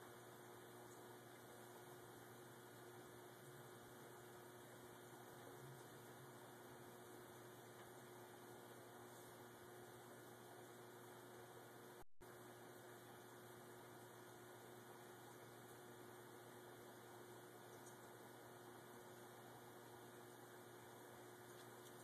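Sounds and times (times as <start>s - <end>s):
faint electrical hum and hiss: 0.0s - 22.0s.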